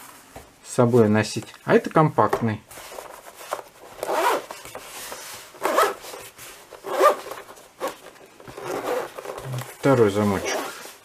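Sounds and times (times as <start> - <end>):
zipper rasping closed: 4.0 - 4.5, 5.6 - 6.2, 6.8 - 9.7, 10.4 - 11.0.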